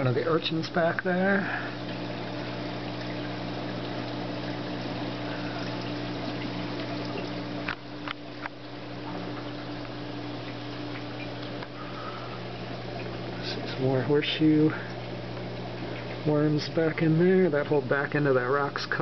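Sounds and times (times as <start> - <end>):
aquarium pumps humming: 0.0 - 19.0
moving water: 0.0 - 19.0.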